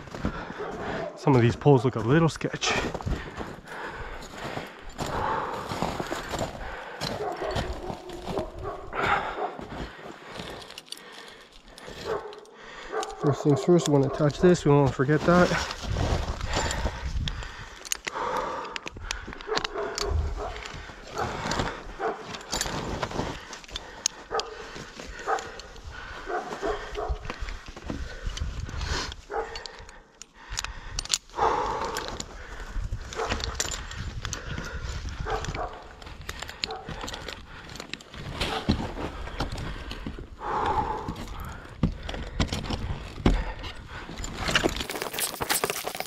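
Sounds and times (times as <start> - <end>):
heavy laboured breathing: 0.0 - 46.0.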